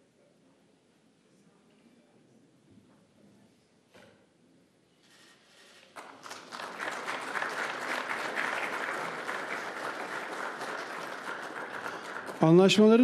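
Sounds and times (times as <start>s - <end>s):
audience applause: 6.0s - 13.0s.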